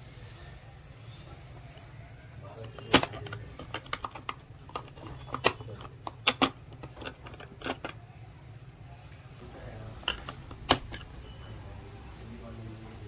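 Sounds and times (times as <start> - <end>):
plastic clock parts clicking: 2.6 - 8.0.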